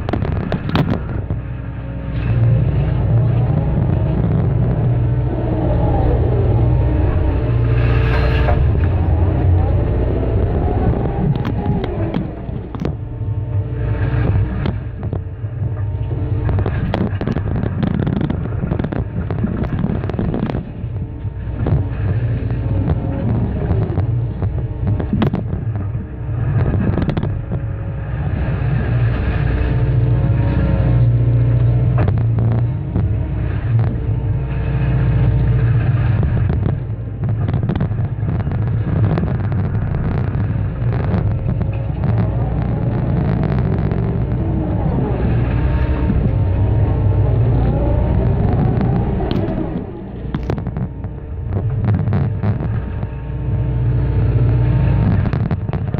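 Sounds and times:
concrete cracking and knocking: 0.0 - 1.5, 34.7 - 46.5, 48.2 - 53.2
excavator diesel engine and hydraulics: 0.0 - 55.9.

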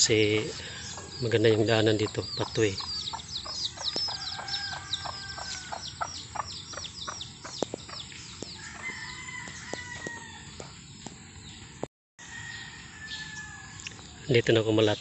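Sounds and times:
chickens peeping chirps: 0.0 - 11.7
chicken drawn-out calls: 2.4 - 7.6.

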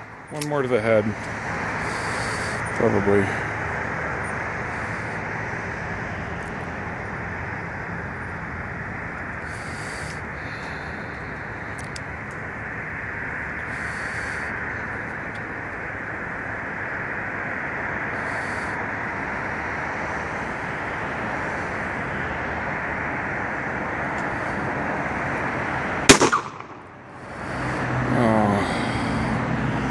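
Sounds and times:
steady hiss: 0.0 - 6.1, 6.8 - 23.6
gunshot: 26.1 - 26.8.

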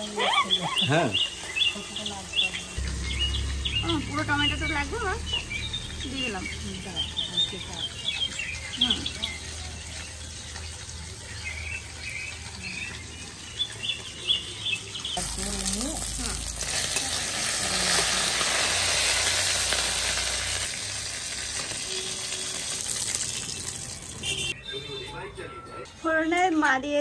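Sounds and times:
fish sizzling in hot oil: 0.0 - 24.5.

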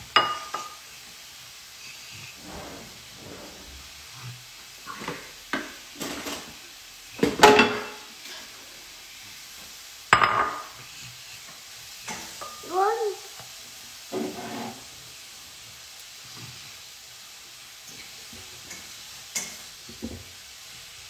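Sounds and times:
steady hiss: 0.0 - 21.0
dishes clinking: 7.3 - 8.1, 10.2 - 10.7.

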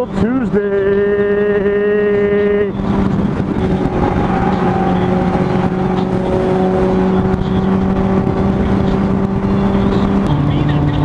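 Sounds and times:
motorcycle engine drone: 0.0 - 11.0
wind and road noise: 0.0 - 11.0.

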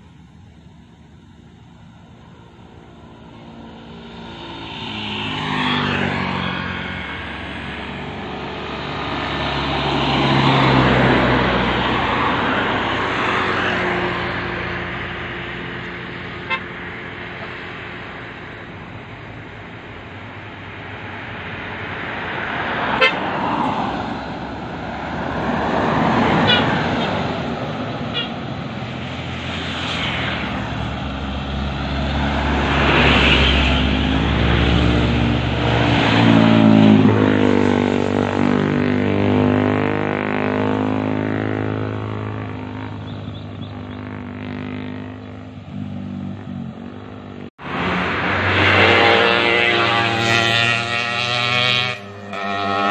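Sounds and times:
vehicles passing: 0.0 - 52.9
short horn toots: 48.6 - 52.9.

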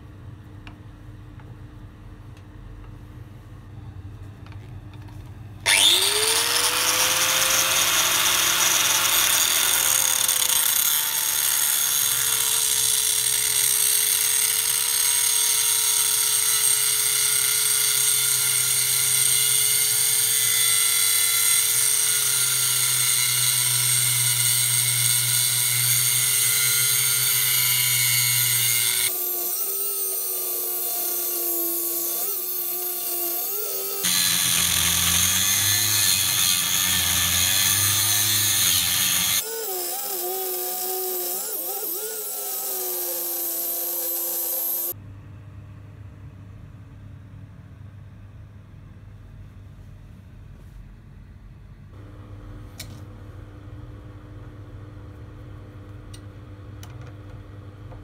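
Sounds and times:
angle grinder cutting metal: 5.6 - 45.0.

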